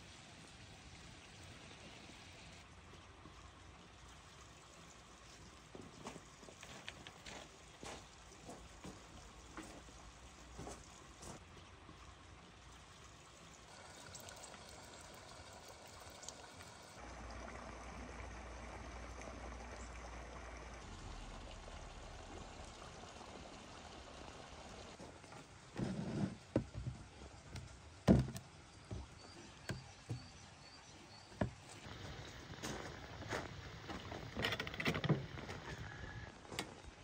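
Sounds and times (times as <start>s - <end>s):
water pouring: 0.0s - 37.0s.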